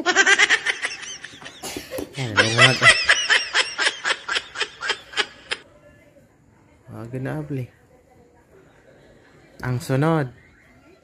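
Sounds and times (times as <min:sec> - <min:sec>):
person giggling: 0:00.0 - 0:05.6.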